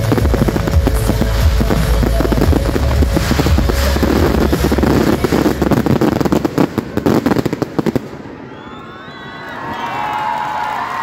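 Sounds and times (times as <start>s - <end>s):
low rumble: 0.0s - 7.0s
firework bursts and crackling: 0.0s - 8.9s.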